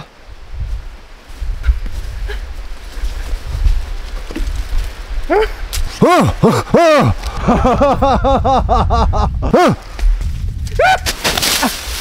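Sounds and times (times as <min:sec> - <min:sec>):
man laughing: 0:05.3 - 0:09.8.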